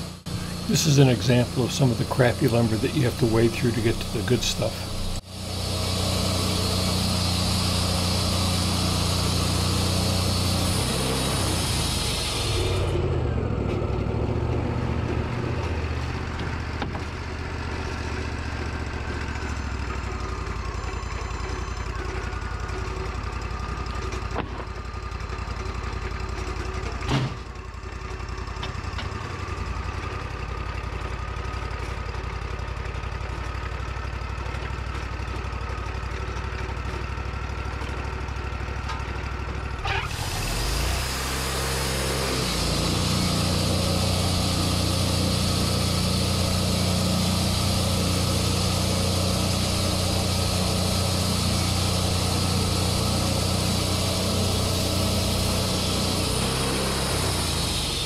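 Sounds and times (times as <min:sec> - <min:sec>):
sawmill engine running: 0:00.0 - 0:58.0
band saw blade cutting wood: 0:00.3 - 0:13.0, 0:39.8 - 0:58.0.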